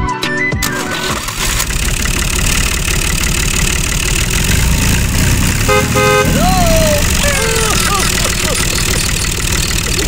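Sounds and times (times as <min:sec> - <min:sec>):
tractor engine running: 0:00.6 - 0:10.0
horn tooting: 0:05.3 - 0:08.8.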